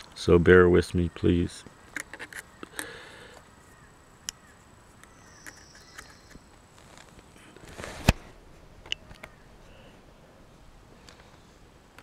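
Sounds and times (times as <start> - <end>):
short rustle: 6.7 - 8.4.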